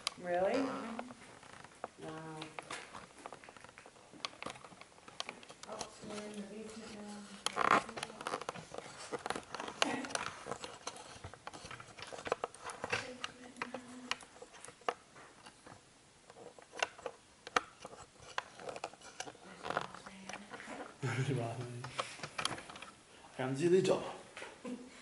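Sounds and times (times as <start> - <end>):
small clicks and taps: 1.0 - 20.6.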